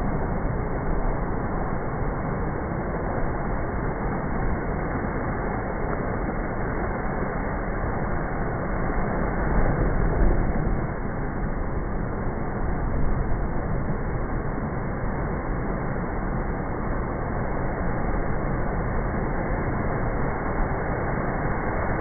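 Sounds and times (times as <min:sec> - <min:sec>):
heavy surf rushing: 0:04.9 - 0:17.2.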